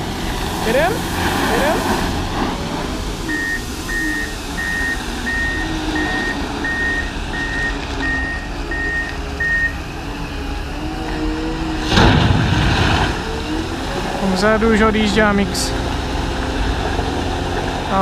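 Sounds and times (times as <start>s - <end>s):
diesel engine running: 0.0s - 18.0s
reversing alarm beeps: 3.3s - 9.8s
loud burst of noise: 11.8s - 13.6s.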